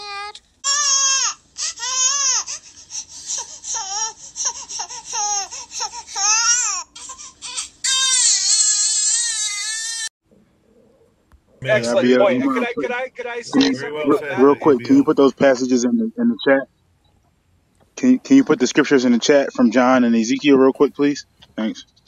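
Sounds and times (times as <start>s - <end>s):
baby crying: 0.0s - 10.1s, 11.6s - 12.9s.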